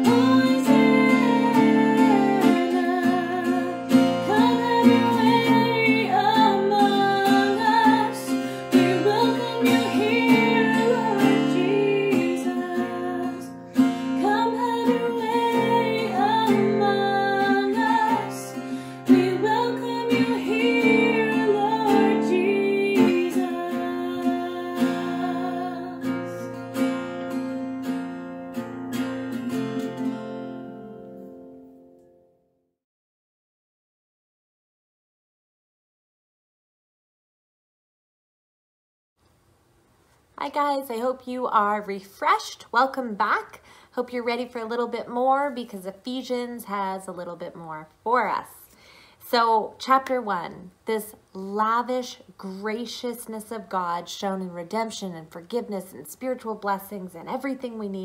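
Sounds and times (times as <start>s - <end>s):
woman singing: 0.0s - 26.5s
acoustic guitar strumming: 0.0s - 32.3s.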